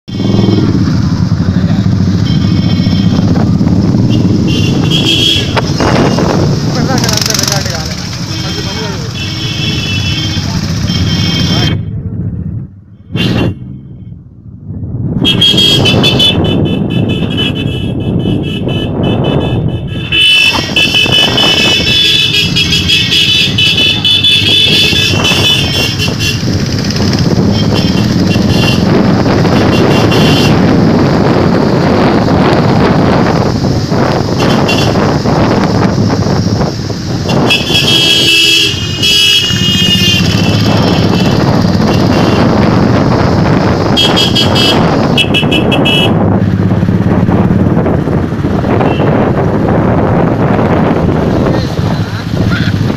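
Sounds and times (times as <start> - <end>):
wind on microphone: 0.1 - 7.9, 14.5 - 52.9
motorcycle engines running: 0.1 - 52.9
high-pitched horns honking: 2.1 - 3.4, 4.0 - 6.3, 8.2 - 11.8, 15.2 - 26.6, 27.5 - 30.7, 34.4 - 35.2, 37.2 - 42.7, 43.9 - 46.2, 48.7 - 49.2.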